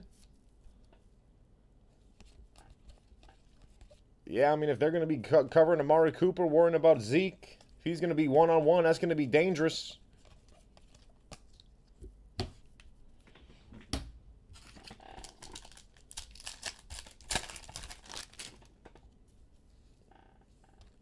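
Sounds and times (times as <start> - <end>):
foil wrapper crinkling and tearing: 14.6 - 18.7.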